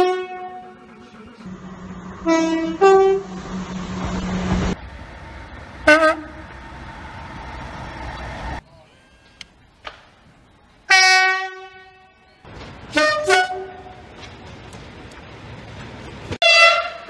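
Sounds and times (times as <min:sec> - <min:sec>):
train horn: 0:00.0 - 0:04.6, 0:05.8 - 0:06.7, 0:10.9 - 0:12.2, 0:12.9 - 0:14.0, 0:16.4 - 0:17.0
two-tone train horn: 0:00.0 - 0:04.6, 0:05.8 - 0:06.7, 0:10.9 - 0:12.3, 0:12.9 - 0:14.0, 0:16.4 - 0:17.0
short horn blast: 0:00.0 - 0:04.8, 0:05.8 - 0:06.6, 0:16.4 - 0:17.0
diesel train engine drone: 0:00.0 - 0:09.7, 0:12.4 - 0:17.0
steady hum: 0:00.8 - 0:08.6.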